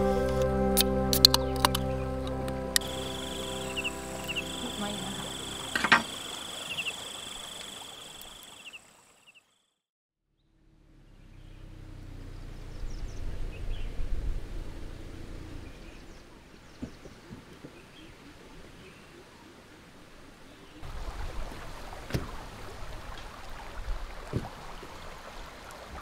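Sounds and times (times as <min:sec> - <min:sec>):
low rumble: 0:10.4 - 0:16.3.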